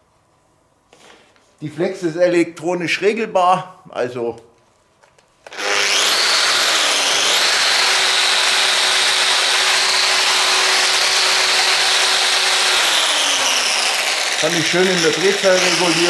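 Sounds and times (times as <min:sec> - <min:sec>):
angle grinder with wire brush: 0:05.5 - 0:16.0.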